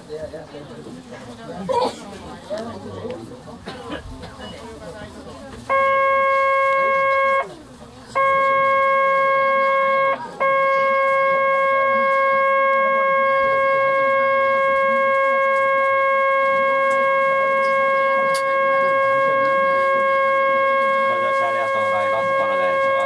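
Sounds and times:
electronic buzzer tone: 0:05.7 - 0:07.5, 0:08.1 - 0:23.0.

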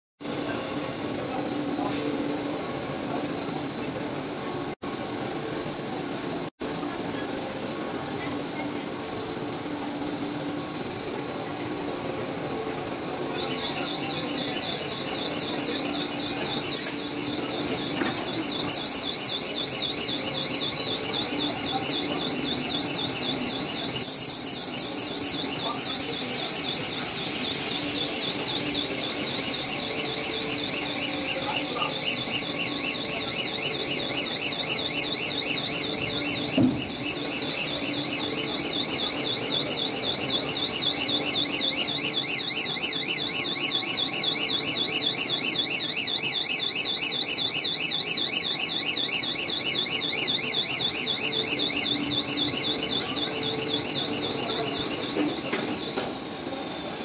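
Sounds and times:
production line hum: 0:00.2 - 0:57.0
warbling alarm tone: 0:13.2 - 0:57.0
thump: 0:36.6 - 0:36.8.

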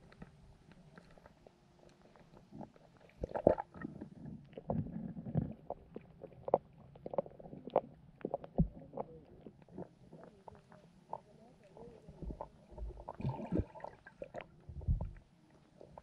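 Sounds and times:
low underwater bumping: 0:12.2 - 0:15.2
underwater clicks and knocks: 0:14.3 - 0:15.2.

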